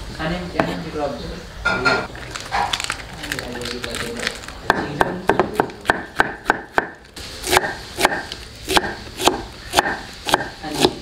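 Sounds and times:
knife chopping on wooden board: 4.7 - 11.0.

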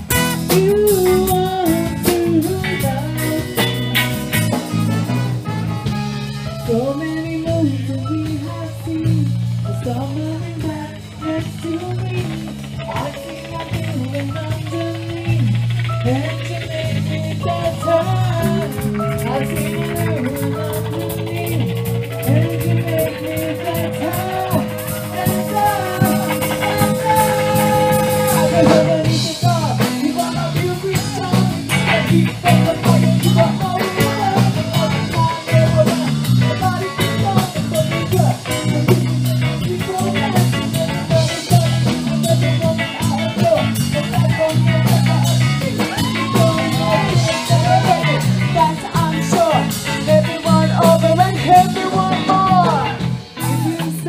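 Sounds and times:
live ska band playing: 0.0 - 54.0
female singer: 0.5 - 3.8, 6.6 - 36.0.

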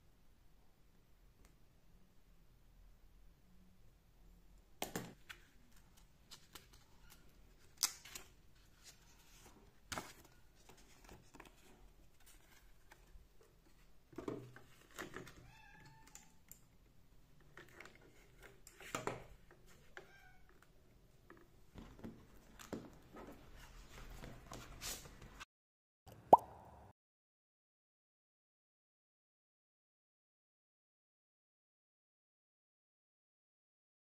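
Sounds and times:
cat meowing: 15.4 - 16.4, 20.0 - 20.5.

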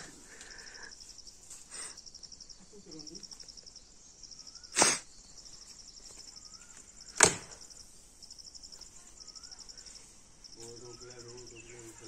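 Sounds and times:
insects chirping: 0.0 - 12.0
blade chopping branches: 7.2 - 7.6.

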